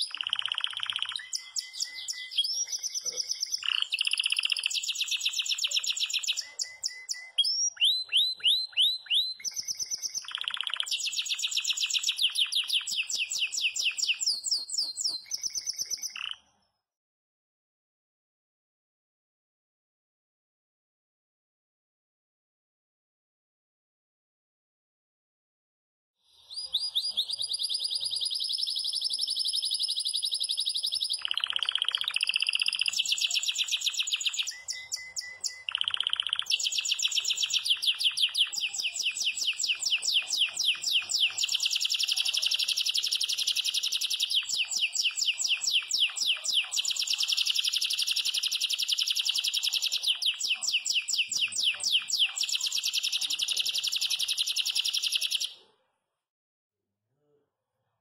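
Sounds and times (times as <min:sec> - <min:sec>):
canary singing trills: 0:00.0 - 0:16.5, 0:26.4 - 0:55.6.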